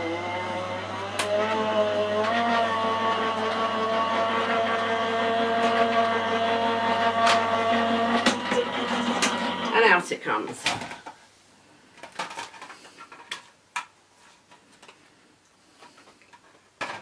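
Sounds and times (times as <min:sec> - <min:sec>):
die-cutting machine motor whining: 0:00.0 - 0:09.8.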